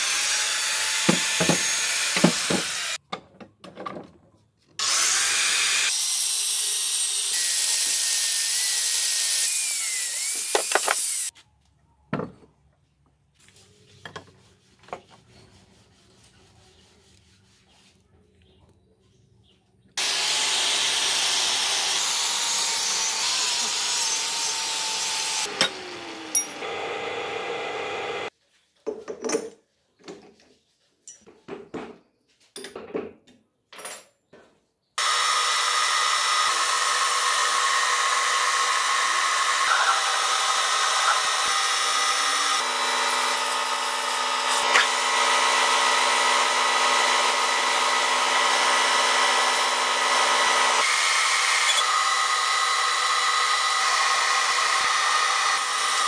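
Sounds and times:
metal lathe whining: 0.0s - 3.0s, 20.0s - 28.3s, 35.0s - 56.0s.

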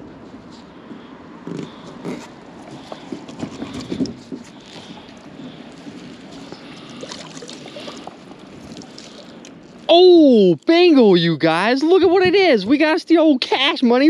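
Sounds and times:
rustling: 0.3s - 10.0s.

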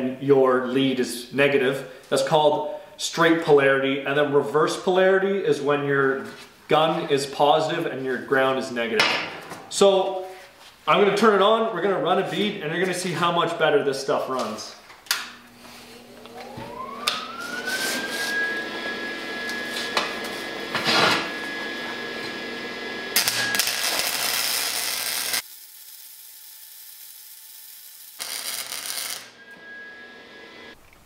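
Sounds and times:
welder high whine: 15.1s - 30.8s
welding arc crackling and sizzling: 23.1s - 29.6s.

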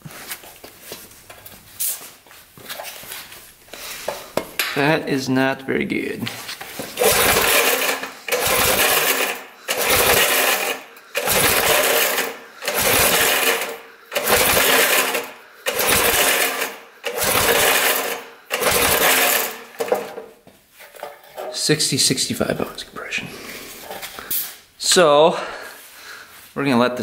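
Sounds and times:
small engine pull-start cranking: 7.0s - 20.2s.

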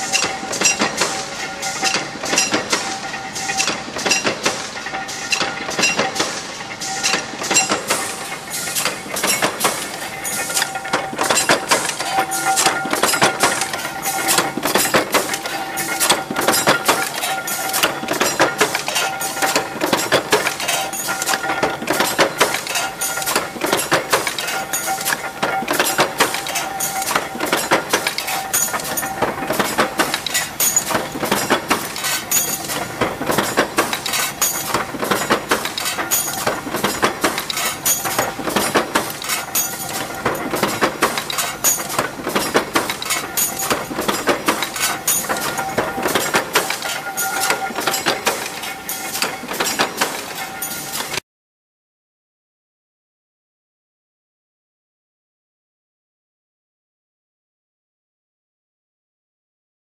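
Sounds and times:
steady machine tone: 6.6s - 49.6s
metal clinking and knocking: 6.9s - 51.2s.

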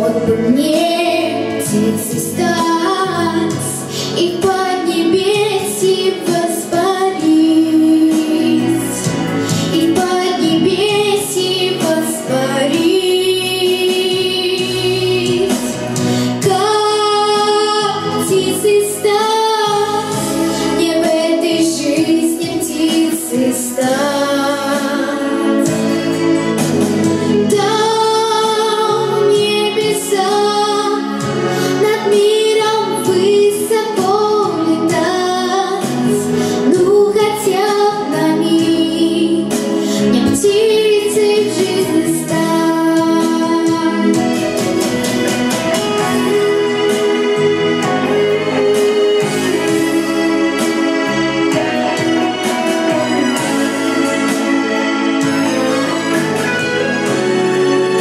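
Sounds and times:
girl singing into a microphone: 0.0s - 25.7s, 27.4s - 44.6s
instrumental accompaniment: 0.0s - 58.0s.

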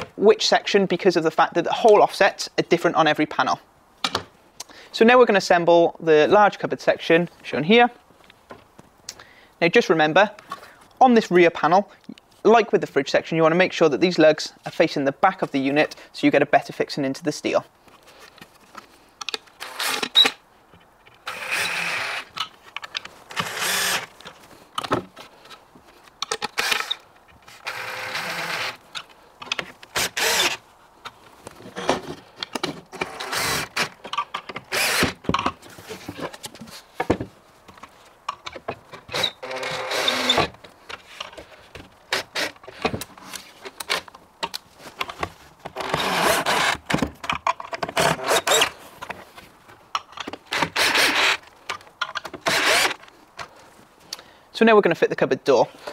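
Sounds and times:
cordless drill driving screws: 19.6s - 20.4s, 21.2s - 22.4s, 23.3s - 24.1s, 26.3s - 27.0s, 27.6s - 28.8s, 29.9s - 30.6s, 33.0s - 33.9s, 34.6s - 35.2s, 39.1s - 40.5s, 45.8s - 46.8s, 48.0s - 48.7s, 50.5s - 51.4s, 52.4s - 53.0s.

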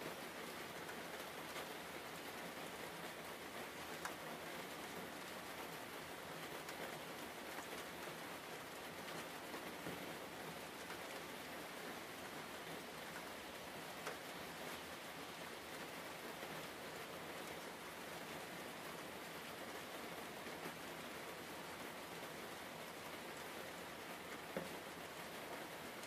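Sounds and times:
faint ticks: 14.0s - 14.8s.

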